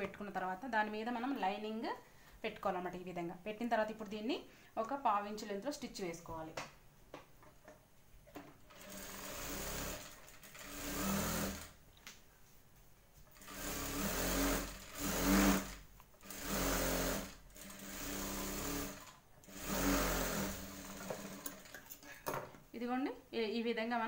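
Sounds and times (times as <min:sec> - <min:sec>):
sewing machine stitching: 0:08.7 - 0:11.8, 0:13.3 - 0:21.9.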